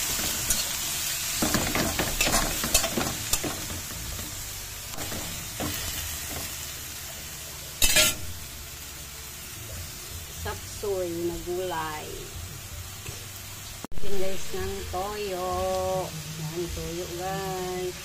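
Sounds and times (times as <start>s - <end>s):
spatula scraping a wok: 0.0s - 6.6s, 7.8s - 8.4s
vegetables sizzling in oil: 0.0s - 18.0s.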